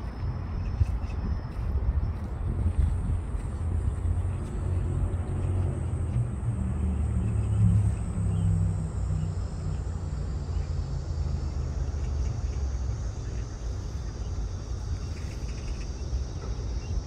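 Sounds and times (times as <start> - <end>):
faint steady high whine: 0.0 - 17.0.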